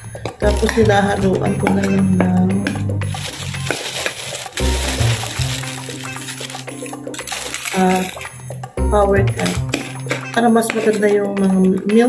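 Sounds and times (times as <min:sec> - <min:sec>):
plastic bag rustling: 0:03.0 - 0:08.7.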